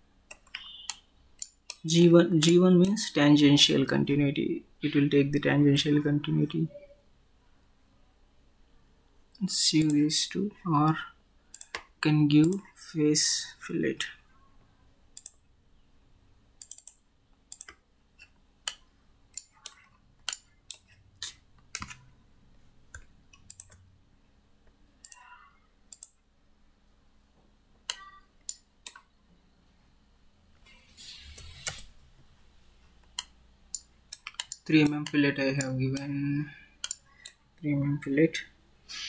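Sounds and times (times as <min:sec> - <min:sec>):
mouse and keyboard clicks: 0:00.3 - 0:02.6, 0:11.5 - 0:12.6, 0:16.6 - 0:22.0, 0:25.0 - 0:25.3, 0:25.9 - 0:26.2, 0:30.6 - 0:31.9, 0:33.0 - 0:36.1, 0:36.8 - 0:37.4.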